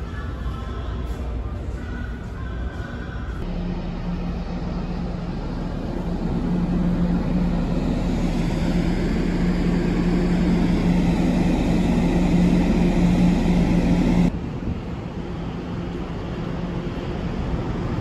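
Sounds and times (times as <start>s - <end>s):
ship machinery droning: 3.4s - 14.3s.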